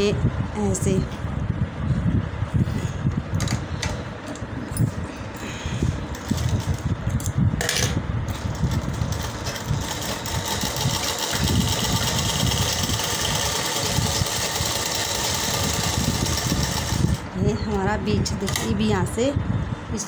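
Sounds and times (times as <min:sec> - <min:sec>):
sewing machine stitching: 0:08.6 - 0:17.2.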